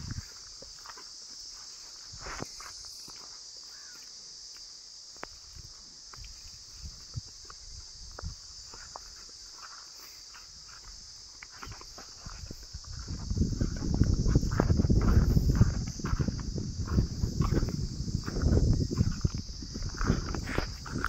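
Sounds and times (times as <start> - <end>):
hooves on dry soil: 0.0 - 21.0
insect chorus: 0.0 - 21.0.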